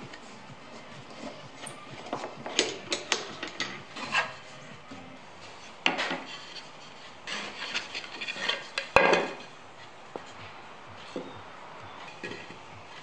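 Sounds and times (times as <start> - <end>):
wood pieces rubbing and scraping: 0.7 - 11.4, 12.0 - 13.0.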